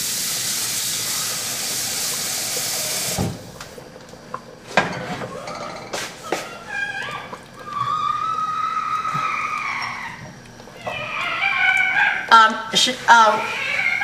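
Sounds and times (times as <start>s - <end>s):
tap running water into sink: 0.0s - 4.2s.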